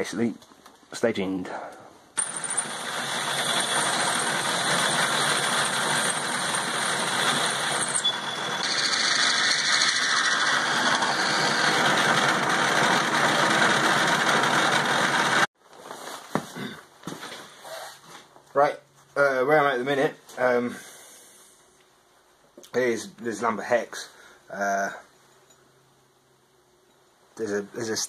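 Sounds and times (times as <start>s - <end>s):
metal lathe drilling whir: 2.2s - 15.5s.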